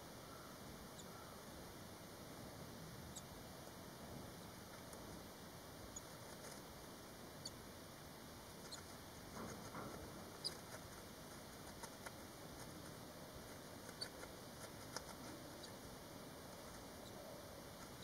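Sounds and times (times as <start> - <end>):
nestlings peeping: 0.0 - 18.0
steady hiss: 0.0 - 18.0
soft rustle: 6.0 - 7.0, 8.6 - 18.0.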